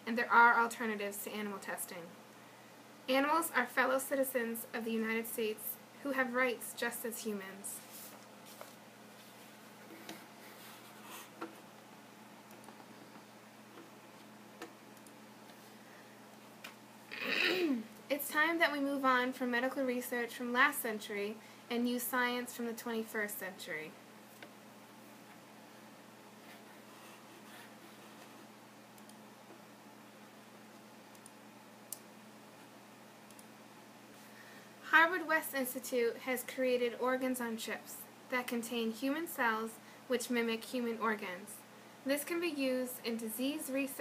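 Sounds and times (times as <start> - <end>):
faint steady hum: 0.0 - 44.0
soft clicks: 31.1 - 32.1, 33.3 - 33.5.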